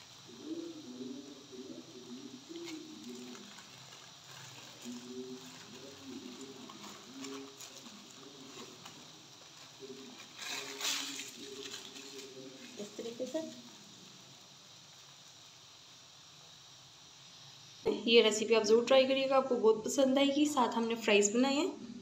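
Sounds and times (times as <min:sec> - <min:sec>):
paper wrapper rustling: 0:02.5 - 0:13.7.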